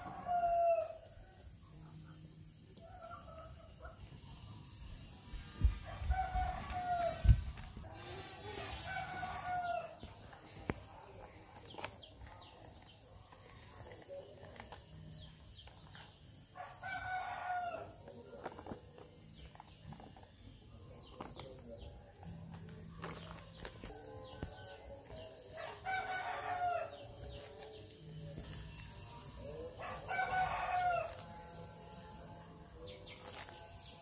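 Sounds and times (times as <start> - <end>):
rooster crowing: 29.8 - 31.3.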